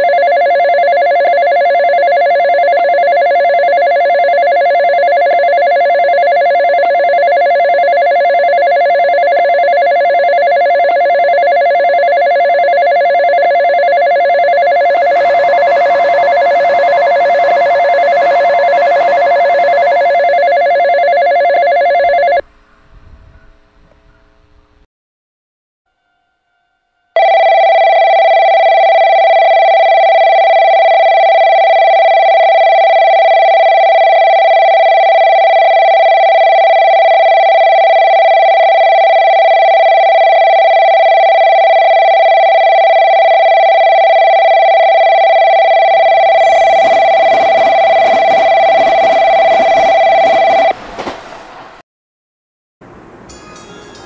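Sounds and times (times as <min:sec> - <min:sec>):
electronic bell ringing: 0:00.0 - 0:22.4, 0:26.1 - 0:50.8
train passing rushing noise: 0:14.7 - 0:20.8, 0:46.1 - 0:51.8.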